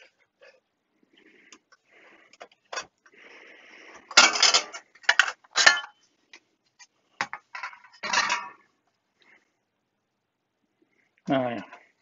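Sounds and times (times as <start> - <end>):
metal cover clattering: 4.1 - 6.0, 7.2 - 8.6.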